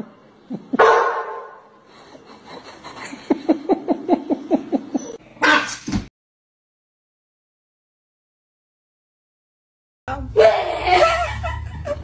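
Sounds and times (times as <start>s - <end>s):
person laughing: 0.4s - 0.8s, 1.9s - 5.2s, 10.7s - 12.0s.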